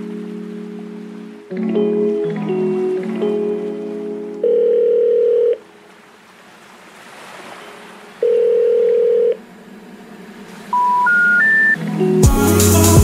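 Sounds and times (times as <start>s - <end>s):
steady telephone tone: 4.4s - 5.7s, 8.2s - 9.4s, 10.7s - 11.8s
higher beep: 10.7s - 11.8s.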